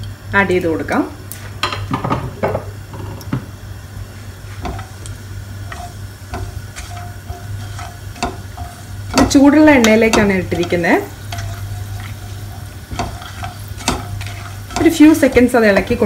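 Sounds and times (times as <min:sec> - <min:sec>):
spices sizzling in hot oil: 0:00.0 - 0:16.0
steady low hum: 0:00.0 - 0:16.0
spatula scraping a pan: 0:04.2 - 0:16.0.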